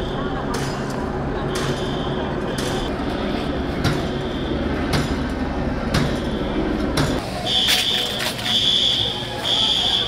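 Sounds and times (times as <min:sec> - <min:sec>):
low rumble of street noise: 0:00.0 - 0:10.0.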